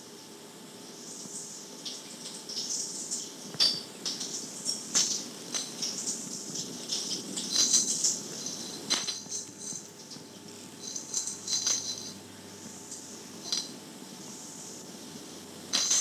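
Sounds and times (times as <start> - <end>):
tape hiss: 0.0 - 16.0
toy rattle shaking: 1.1 - 12.2.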